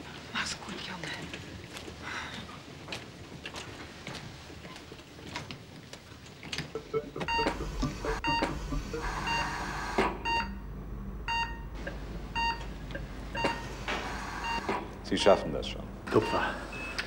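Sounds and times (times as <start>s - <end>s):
heart monitor beeping: 6.7s - 14.8s, 16.1s - 17.0s
low steady hum: 6.7s - 17.0s.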